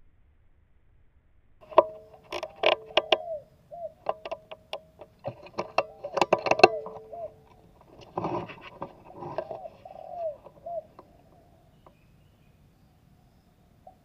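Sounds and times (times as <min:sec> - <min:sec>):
sharp clicks and knocks: 0:01.6 - 0:03.4, 0:04.0 - 0:12.0
dove cooing: 0:01.8 - 0:12.6.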